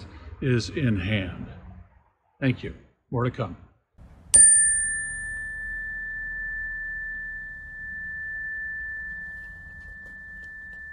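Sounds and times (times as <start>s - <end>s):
faint low rumble: 0.0s - 2.8s
high pure ringing tone: 4.2s - 10.9s.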